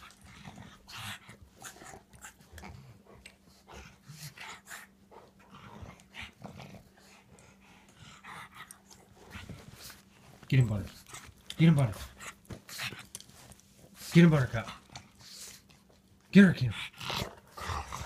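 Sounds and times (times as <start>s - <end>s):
dogs growling: 0.0s - 10.0s, 10.8s - 13.2s, 16.7s - 18.0s.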